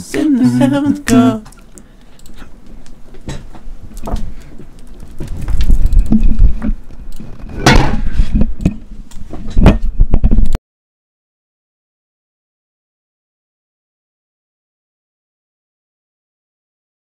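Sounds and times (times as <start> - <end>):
microphone handling bumps and rustles: 5.1 - 10.6.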